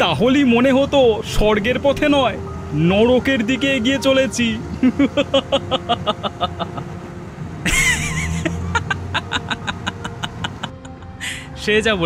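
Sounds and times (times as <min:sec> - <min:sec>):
car engine hum: 0:00.0 - 0:12.0
men laughing: 0:04.7 - 0:07.0, 0:07.6 - 0:11.5.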